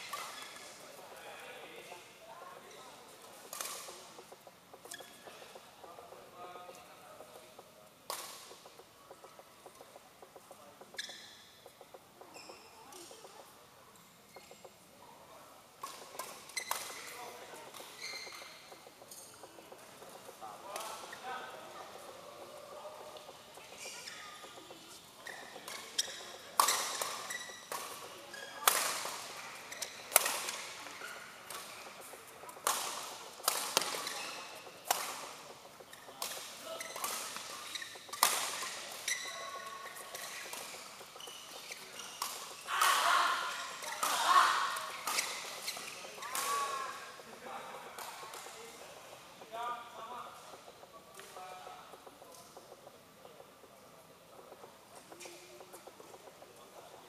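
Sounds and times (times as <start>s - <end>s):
shoes squeaking on floor: 0.0s - 14.9s, 15.8s - 57.0s
badminton racket hitting shuttlecock: 24.5s - 47.2s.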